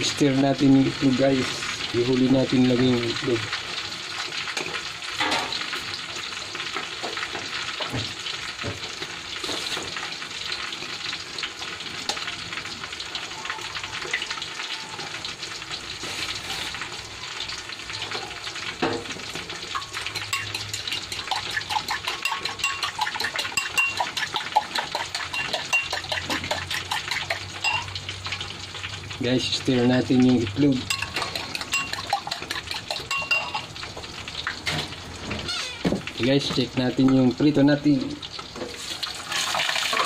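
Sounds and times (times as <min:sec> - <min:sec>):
vegetables sizzling in a wok: 0:00.0 - 0:40.0
fork beating eggs in a bowl: 0:19.8 - 0:27.9, 0:30.9 - 0:33.6.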